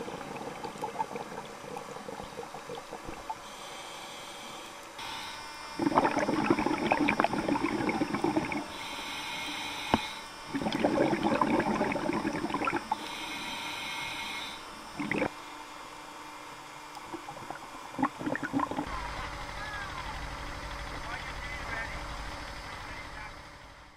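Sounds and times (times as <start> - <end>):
gurgling exhaled bubbles underwater: 0.0 - 3.4, 5.8 - 8.7, 10.5 - 13.0, 14.9 - 15.4, 17.0 - 18.9
regulator hissing inhale: 3.3 - 5.4, 7.4 - 10.4, 12.9 - 14.8.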